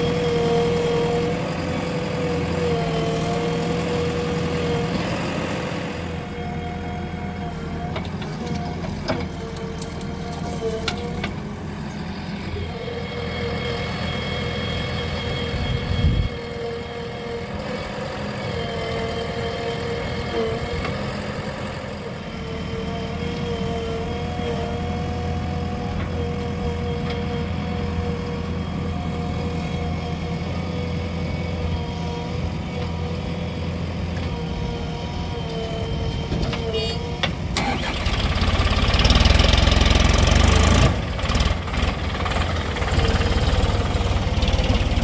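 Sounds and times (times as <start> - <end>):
diesel engines running: 0.0 - 45.0.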